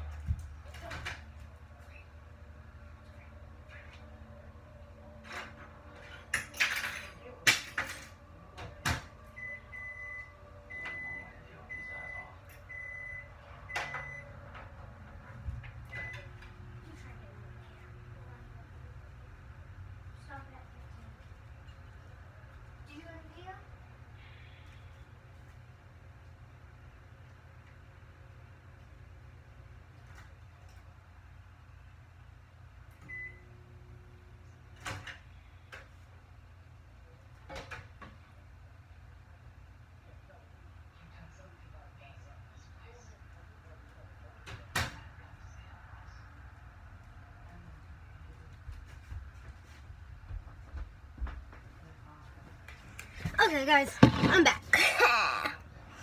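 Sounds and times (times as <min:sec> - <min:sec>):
faint household knocks and clatters: 0:00.0 - 0:01.6, 0:05.1 - 0:09.4, 0:48.4 - 0:54.6
steady low hum: 0:00.0 - 0:56.0.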